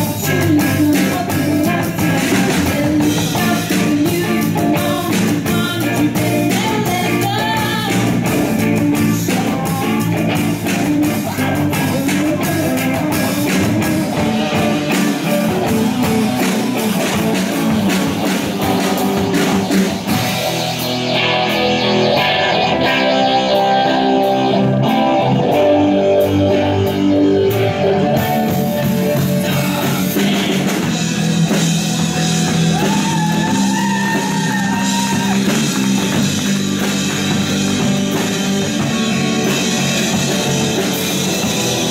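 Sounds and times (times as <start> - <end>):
bass guitar: 0.0 - 41.9
drum kit: 0.0 - 41.9
electric guitars: 0.0 - 41.9
girl singing: 0.2 - 14.0.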